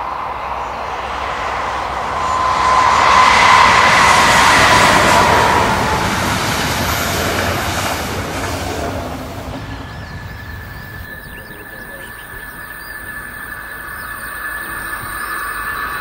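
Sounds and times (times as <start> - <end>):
high whine: 0.0 - 16.0
train rolling past: 0.0 - 16.0
birds chirping faintly: 8.2 - 16.0.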